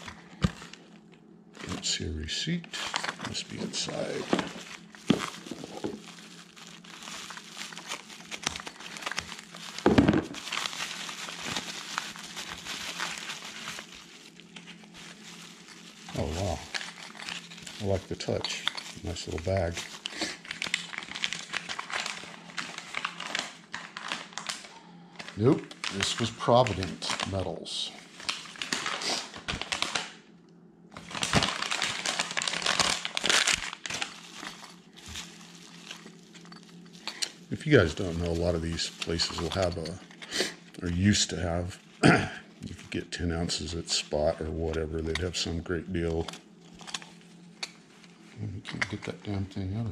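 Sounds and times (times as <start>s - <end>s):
packing material crinkling: 0.0s - 30.2s, 30.9s - 49.8s
package thump: 9.8s - 10.4s.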